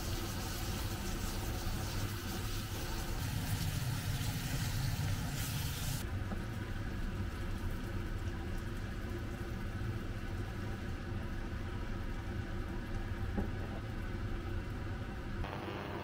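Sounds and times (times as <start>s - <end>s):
kitchen fan humming: 0.0s - 7.5s.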